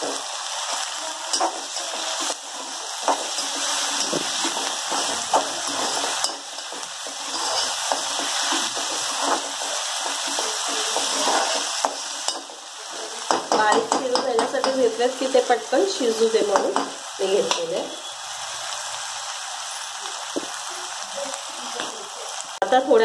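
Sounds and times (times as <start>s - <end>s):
steel spoon scraping a pan: 0.0s - 12.5s
vegetables sizzling in hot oil: 0.0s - 23.0s.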